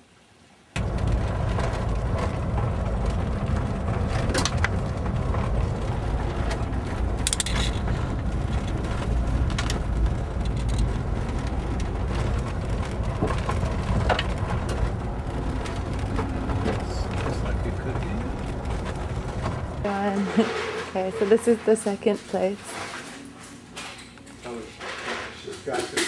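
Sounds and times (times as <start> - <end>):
car cabin road and engine noise: 0.8 - 22.7.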